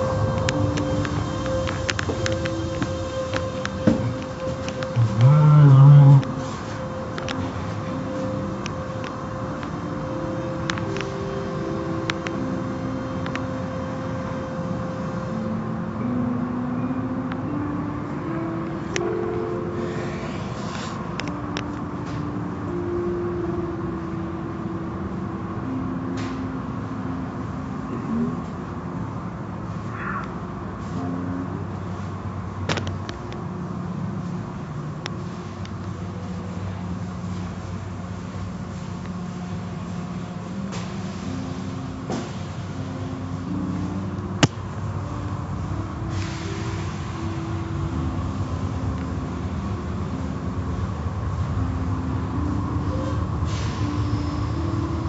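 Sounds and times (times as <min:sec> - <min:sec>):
wash noise: 0:00.0 - 0:15.6
car wash motors humming: 0:00.0 - 0:55.0.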